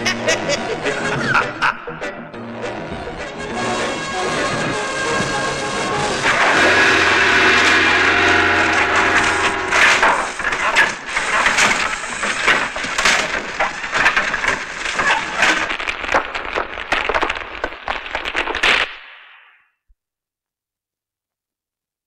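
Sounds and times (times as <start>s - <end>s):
rocks crashing and tumbling: 6.2s - 19.2s.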